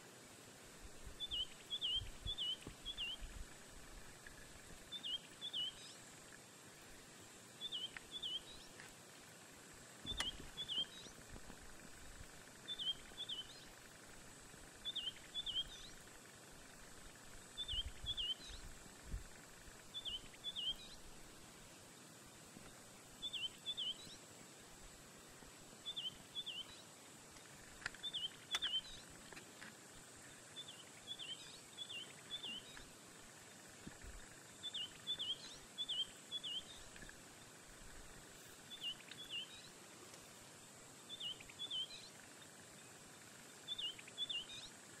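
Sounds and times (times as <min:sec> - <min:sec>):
faint high-pitched whine: 0:00.0 - 0:45.0
bird calling: 0:10.0 - 0:11.2, 0:28.0 - 0:29.0
sharp clicks: 0:10.1 - 0:10.4.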